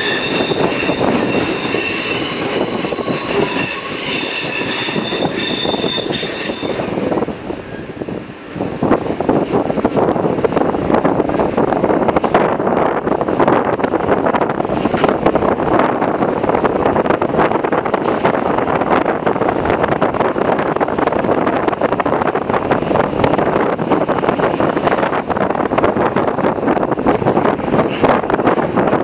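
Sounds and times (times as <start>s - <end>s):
train running on track: 0.0s - 29.0s
wind buffeting microphone: 0.0s - 29.0s.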